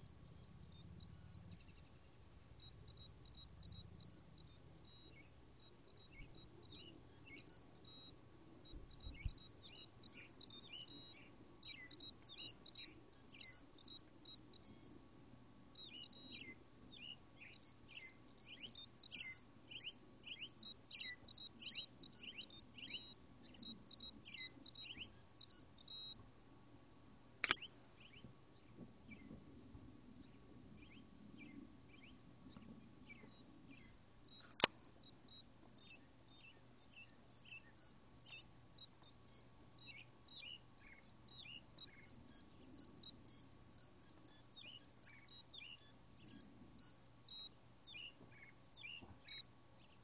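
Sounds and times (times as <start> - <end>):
watch playing beeping melody: 0.0 - 1.6, 2.6 - 14.9, 15.8 - 26.2, 33.0 - 47.5, 49.3 - 49.5.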